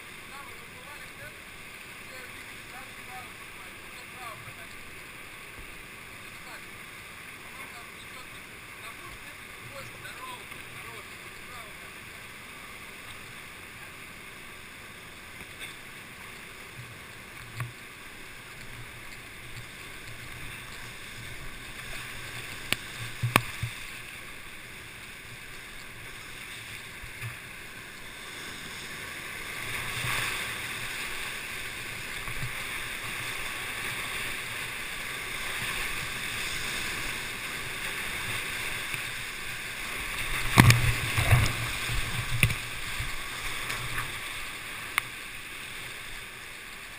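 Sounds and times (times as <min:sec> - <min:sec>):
whitewater rushing: 0:00.0 - 0:46.9
water splashing with heavy thumps: 0:16.6 - 0:45.2.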